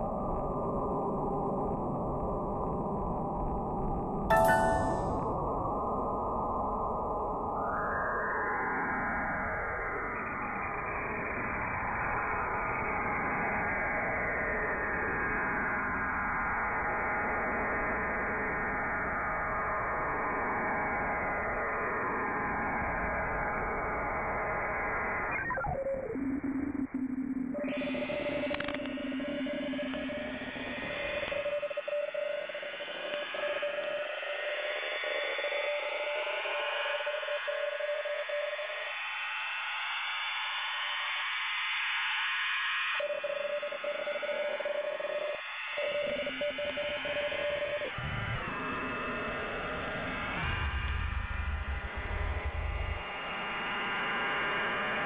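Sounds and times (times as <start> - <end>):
steady radio tone: 43.0 - 54.0.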